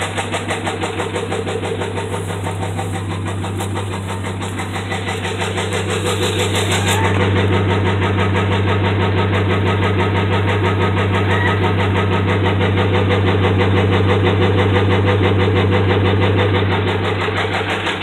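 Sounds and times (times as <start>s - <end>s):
engine idling with rapid knock: 0.0s - 18.0s.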